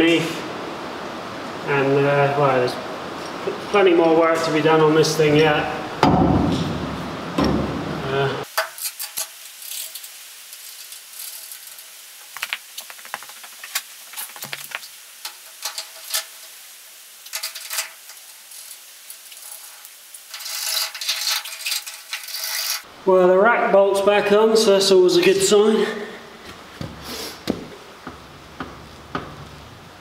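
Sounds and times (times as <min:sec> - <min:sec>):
loud rustling: 0:10.6 - 0:16.4
ratchet clicks: 0:20.3 - 0:22.8.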